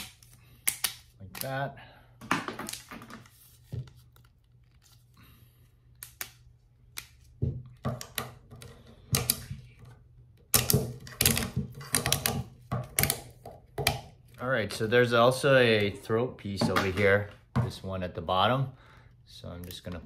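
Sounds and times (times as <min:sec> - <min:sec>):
plastic grommets clicking and rattling: 0:07.1 - 0:14.9.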